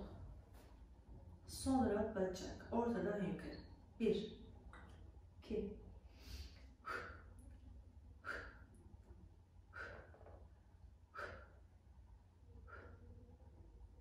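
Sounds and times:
low room hum: 0:00.0 - 0:14.0
woman breathing faintly: 0:06.0 - 0:09.0, 0:09.6 - 0:11.8, 0:12.5 - 0:13.5.

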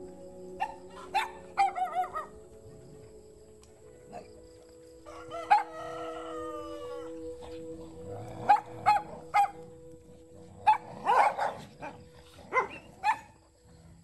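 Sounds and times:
rooster crowing: 0:05.0 - 0:07.3.

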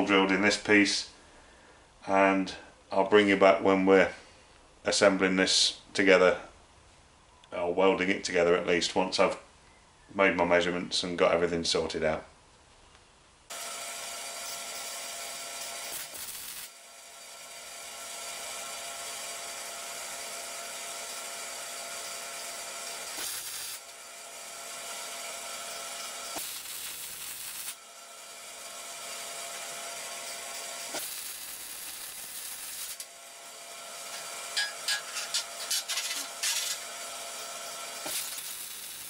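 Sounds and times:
welding arc crackling hiss: 0:14.4 - 0:16.8, 0:23.0 - 0:24.0, 0:25.6 - 0:28.4, 0:30.2 - 0:33.1, 0:34.0 - 0:36.8, 0:37.9 - 0:39.0.

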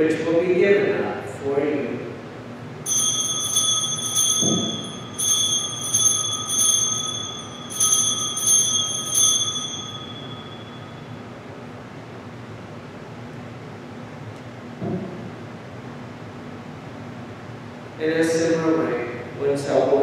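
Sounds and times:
altar bells ringing: 0:02.8 - 0:11.4.

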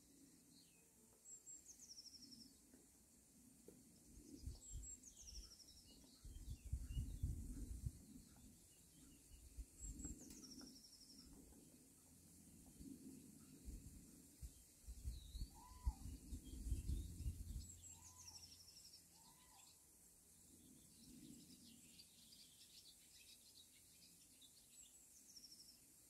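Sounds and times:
songbird arched call: 0:15.2 - 0:17.0, 0:17.6 - 0:19.8.

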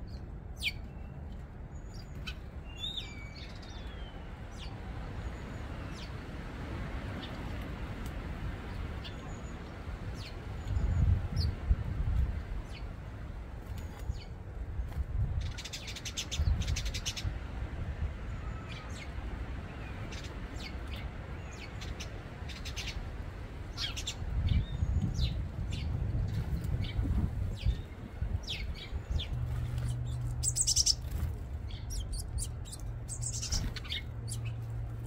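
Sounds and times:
birds chirping: 0:00.0 - 0:06.2, 0:18.3 - 0:35.0.

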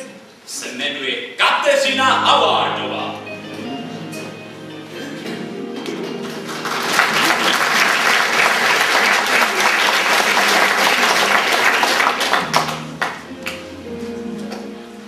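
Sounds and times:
musical accompaniment: 0:01.8 - 0:15.0
audience applause: 0:06.0 - 0:13.3.

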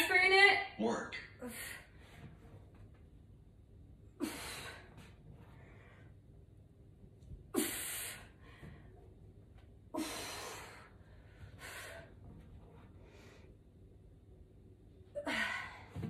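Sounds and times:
woman breathing heavily: 0:01.4 - 0:02.6, 0:04.0 - 0:06.4, 0:07.4 - 0:09.2, 0:09.8 - 0:13.8, 0:15.1 - 0:16.0.

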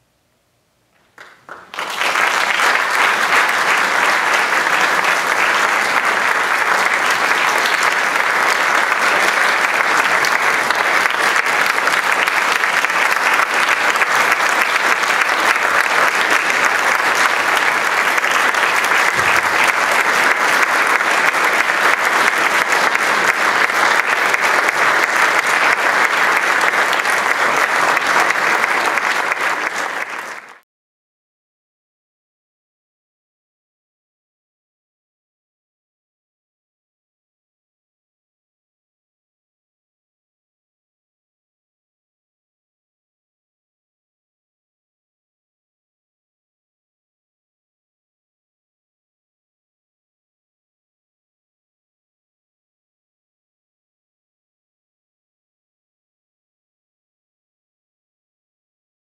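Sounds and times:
audience applauding: 0:01.1 - 0:30.6.

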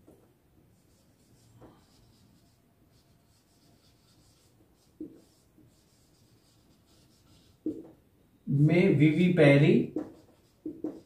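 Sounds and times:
marker writing on whiteboard: 0:00.0 - 0:08.0, 0:09.8 - 0:11.0.

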